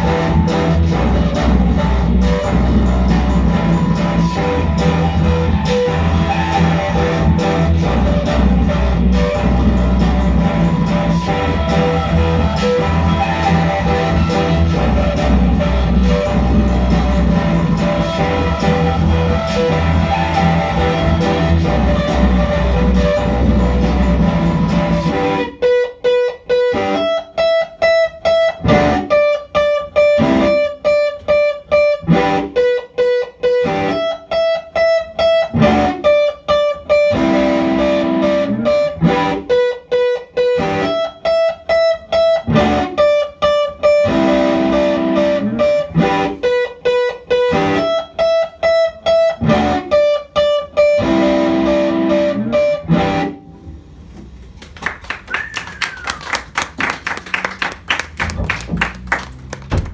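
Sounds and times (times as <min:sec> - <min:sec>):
low electric guitar drone: 0:00.0 - 0:25.6, 0:57.6 - 0:59.8
electric guitar riff: 0:00.0 - 0:54.0, 0:56.8 - 0:59.9.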